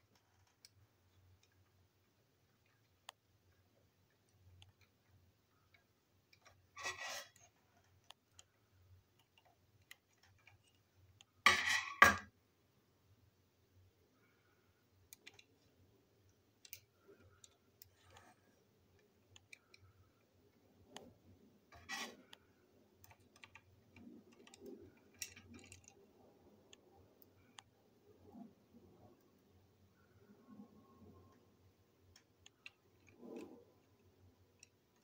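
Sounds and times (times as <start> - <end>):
plastic toy parts clattering: 24.3 - 26.0.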